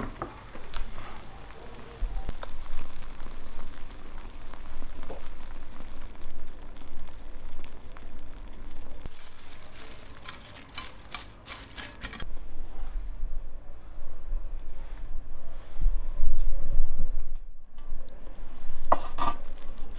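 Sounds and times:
meat and vegetables sizzling in tray: 0.0s - 12.2s
crisp rustles of leaves: 8.0s - 12.2s.

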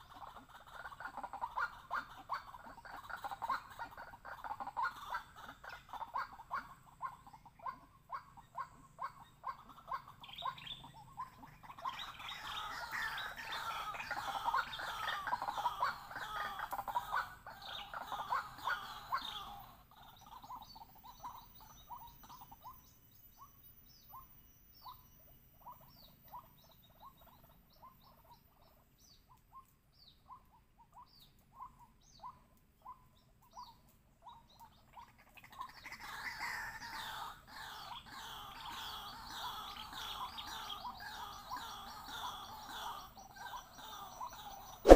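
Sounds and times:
waterhen calling: 0.0s - 23.5s, 34.4s - 44.9s.

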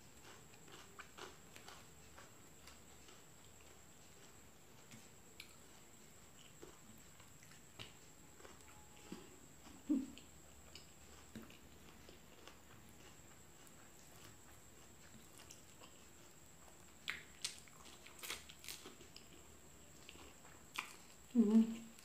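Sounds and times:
quiet chewing: 0.0s - 22.0s
crunching bites of fried food: 10.7s - 21.2s.

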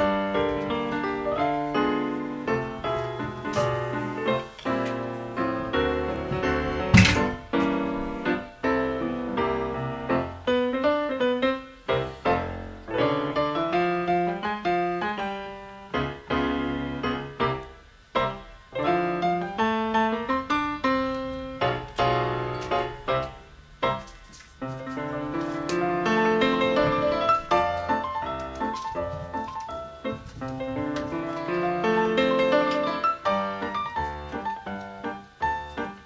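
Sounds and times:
piano music: 0.0s - 36.0s.

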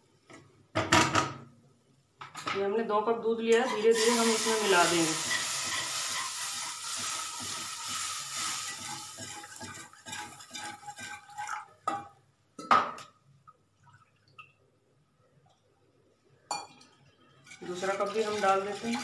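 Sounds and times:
wire whisk scraping in pan: 3.6s - 11.6s, 17.4s - 19.0s
milk sizzling in hot pan: 3.7s - 11.8s, 17.5s - 19.0s.

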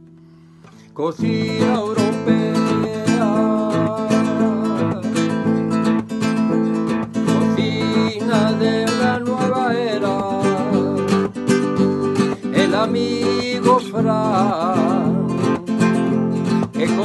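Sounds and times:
strummed acoustic guitar: 0.0s - 17.0s
person singing: 0.8s - 17.0s.

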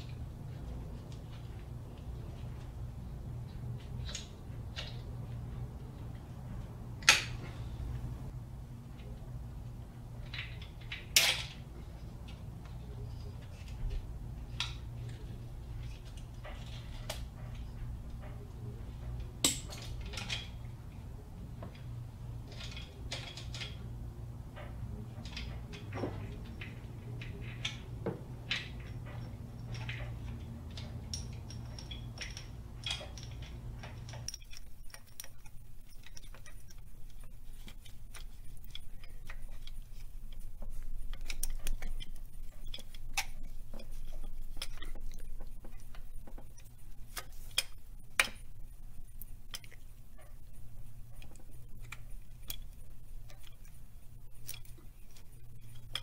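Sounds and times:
metal parts clinking: 10.2s - 20.7s, 21.7s - 24.0s, 24.6s - 56.0s.

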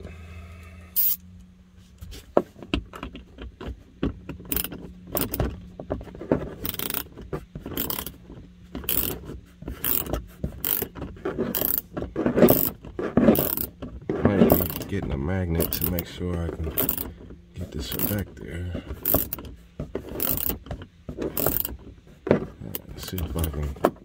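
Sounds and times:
hand ratchet clicking: 4.5s - 5.4s, 6.6s - 7.1s, 7.7s - 8.2s, 8.8s - 9.2s, 9.8s - 10.9s, 11.5s - 11.8s, 12.5s - 13.7s, 14.5s - 14.9s, 15.6s - 16.0s, 16.7s - 17.1s, 17.9s - 18.2s, 19.0s - 19.5s, 20.2s - 20.6s, 21.3s - 21.7s.

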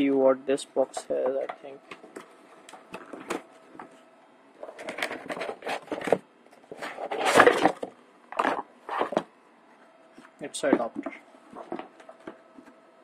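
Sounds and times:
cardboard and foam rustling: 4.6s - 9.3s.

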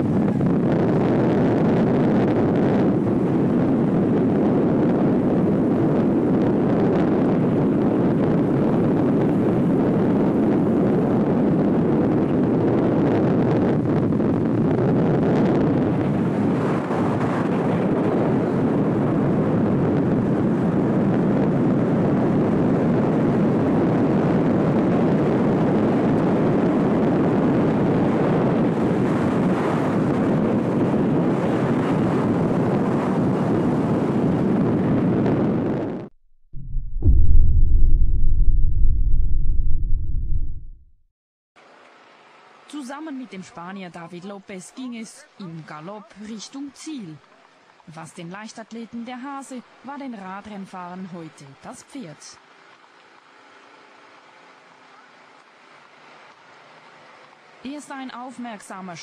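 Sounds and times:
vehicle and road noise: 0.0s - 36.0s, 41.6s - 47.9s, 49.4s - 59.0s
wind buffeting microphone: 0.0s - 41.0s.

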